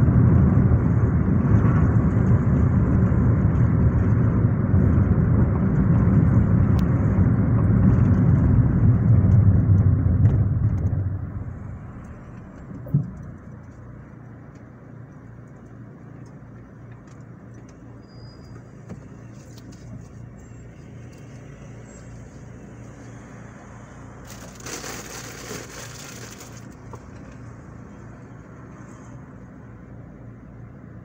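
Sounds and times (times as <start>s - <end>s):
traffic passing: 0.0s - 31.0s
car engine idling: 2.0s - 18.0s.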